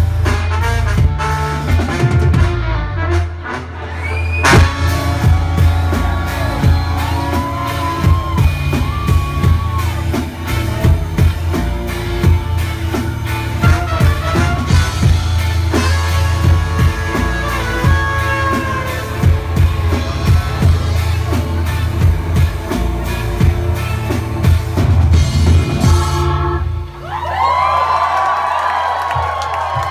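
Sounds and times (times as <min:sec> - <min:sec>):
trumpet and trombone horn line: 0:00.0 - 0:06.3, 0:13.4 - 0:21.4, 0:22.2 - 0:27.0
live band playing upbeat song: 0:00.0 - 0:26.8.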